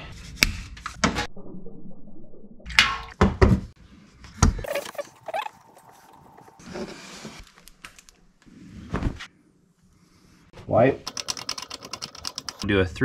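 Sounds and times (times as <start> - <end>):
handling scraping and rustling: 4.6 - 7.8.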